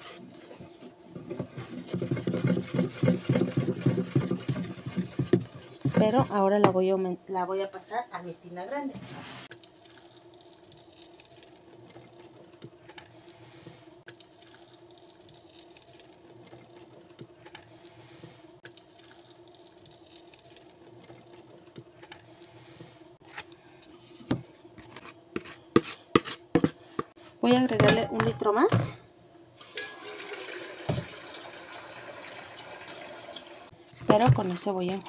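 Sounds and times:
liquid soap pouring sloshing: 14.1s - 17.2s, 18.7s - 21.6s.

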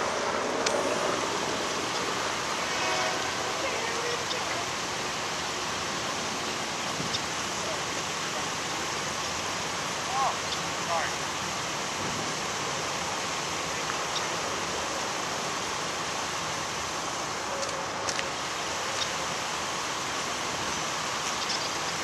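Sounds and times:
outdoor background hiss: 0.0s - 22.0s.

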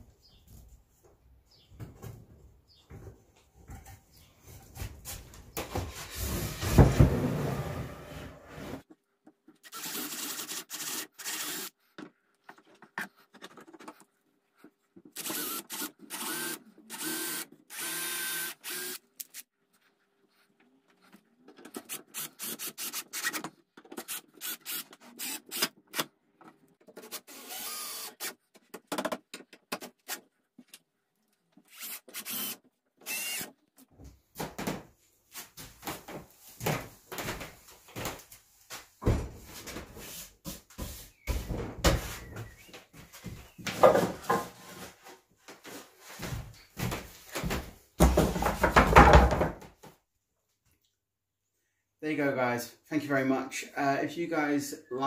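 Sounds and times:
cordless drill running in bursts: 9.7s - 11.7s, 15.2s - 19.0s, 27.3s - 28.3s, 31.7s - 33.5s.

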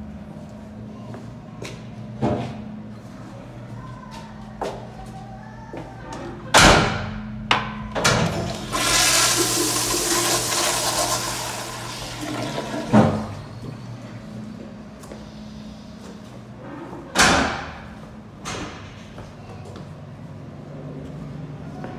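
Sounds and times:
steady low hum: 0.0s - 21.8s
rushing water of toilet flush: 8.3s - 13.6s.

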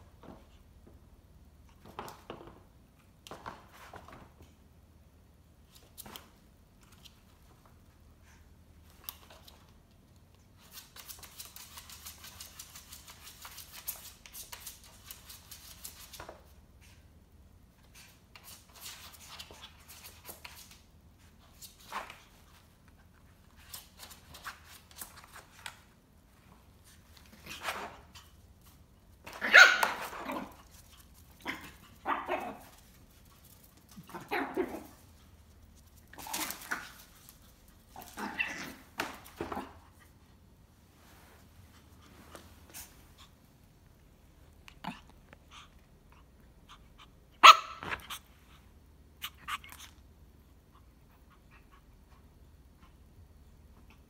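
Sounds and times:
puppy barking: 29.4s - 30.5s, 47.4s - 48.0s.

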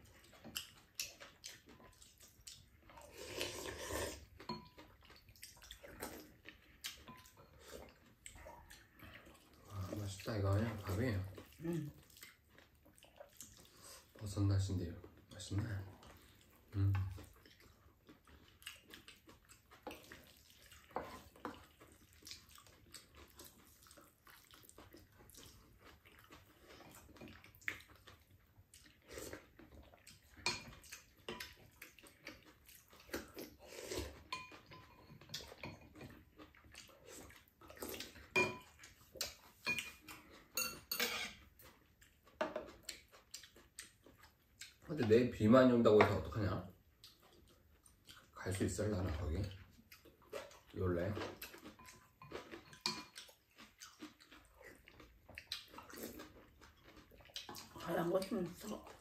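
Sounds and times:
utensils clinking against pan and bowls: 34.3s - 36.0s, 38.4s - 38.7s, 40.6s - 41.4s, 51.8s - 53.2s.

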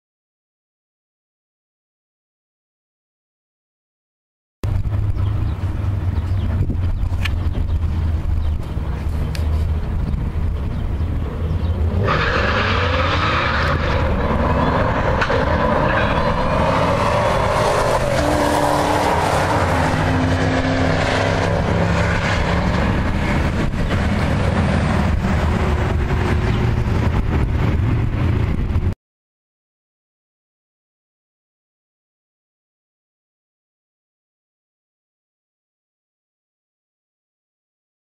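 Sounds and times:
car engines idling: 4.6s - 28.9s
car engines accelerating hard: 4.6s - 29.0s.

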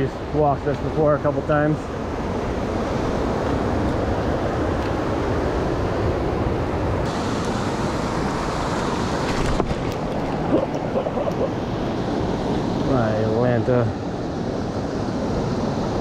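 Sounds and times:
fast-flowing river rushing: 7.0s - 16.0s.

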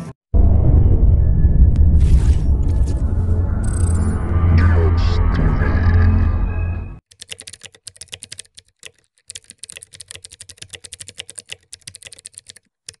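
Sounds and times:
music: 0.7s - 7.0s
computer keyboard typing: 7.1s - 13.0s.

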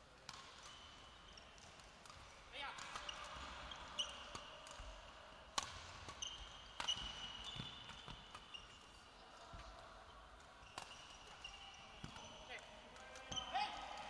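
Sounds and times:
rackets striking shuttlecock: 0.2s - 8.6s, 10.4s - 14.0s
shoes squeaking on court floor: 2.9s - 4.5s, 6.1s - 9.1s, 10.6s - 13.8s.

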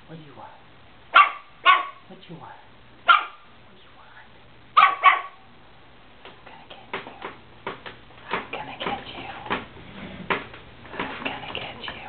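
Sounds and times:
puppies' paws clicking and tapping: 6.2s - 9.7s, 10.3s - 12.0s.

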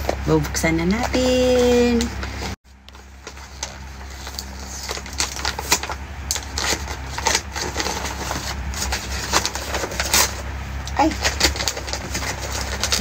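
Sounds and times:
low steady hum: 0.0s - 13.0s
gift wrapping paper crinkling: 2.8s - 13.0s.

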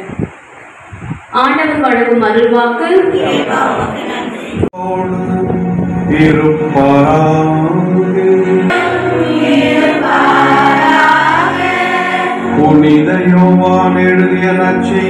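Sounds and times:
choir singing a hymn: 6.8s - 15.0s.

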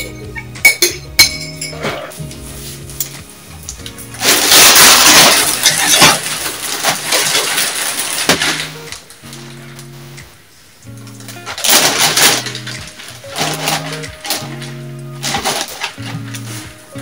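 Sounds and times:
background music: 0.0s - 17.0s
plastic bag crinkling: 2.4s - 10.0s, 11.1s - 17.0s.

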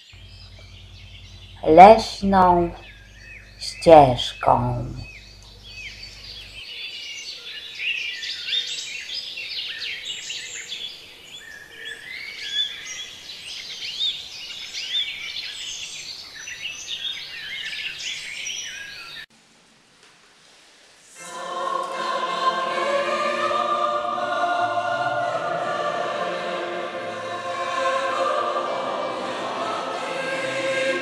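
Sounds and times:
songbirds singing: 0.0s - 19.2s.

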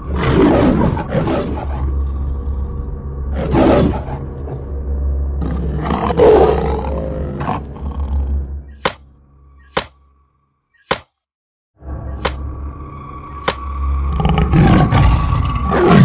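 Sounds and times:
tiger roaring: 0.0s - 4.6s, 5.4s - 8.4s.

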